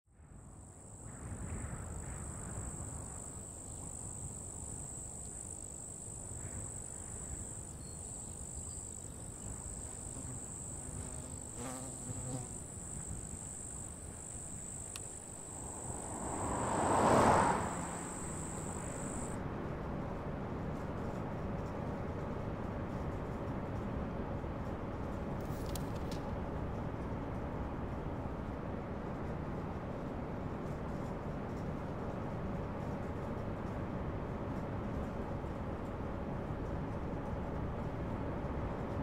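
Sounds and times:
crickets trilling: 0.4s - 19.4s
rush of noise: 14.4s - 19.4s.

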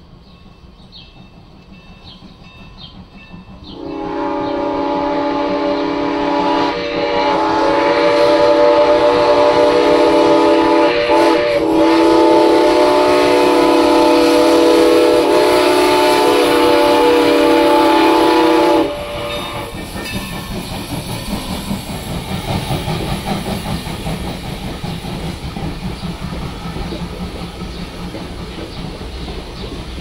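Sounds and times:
steam whistle chord: 3.7s - 20.2s.

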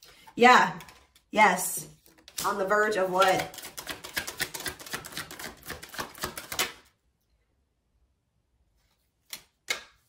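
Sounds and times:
cards being shuffled: 1.9s - 6.9s, 8.8s - 10.0s.

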